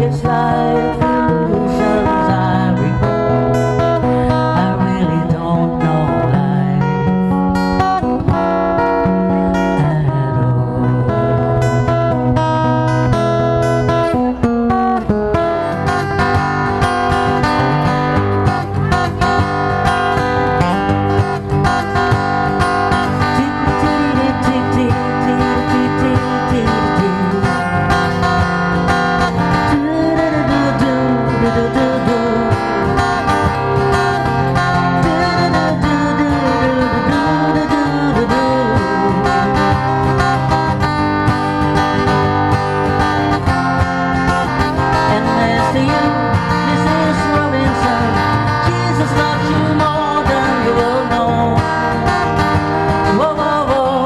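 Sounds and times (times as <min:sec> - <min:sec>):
man singing: 0:00.0 - 0:07.4, 0:09.0 - 0:11.4, 0:22.8 - 0:40.9, 0:44.5 - 0:54.0
acoustic guitar strumming: 0:00.0 - 0:54.0.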